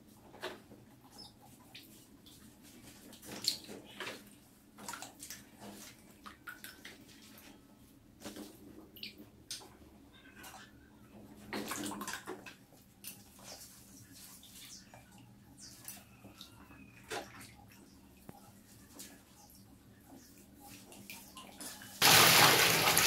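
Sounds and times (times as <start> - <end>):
small water splashes: 22.0 - 23.0.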